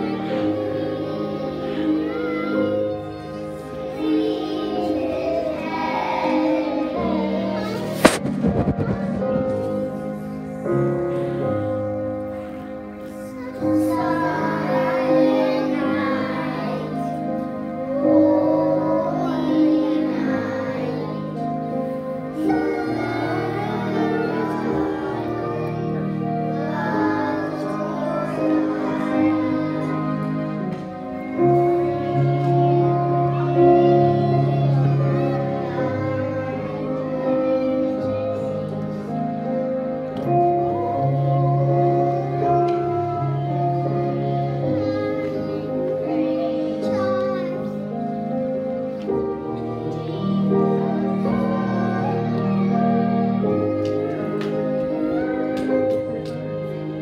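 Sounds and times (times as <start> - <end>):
recorded song with singing: 0.0 - 57.0
sharp knock: 7.9 - 10.5.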